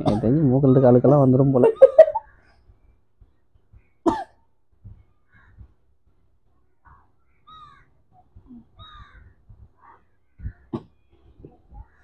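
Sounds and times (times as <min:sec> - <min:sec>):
crows cawing: 0:05.2 - 0:05.7, 0:06.8 - 0:08.0, 0:08.8 - 0:10.8.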